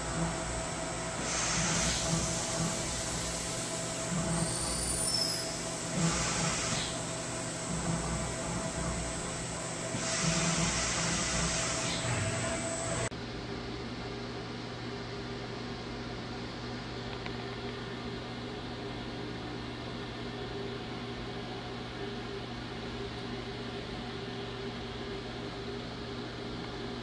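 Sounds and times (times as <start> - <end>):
idle machine hum: 0.0 - 13.1.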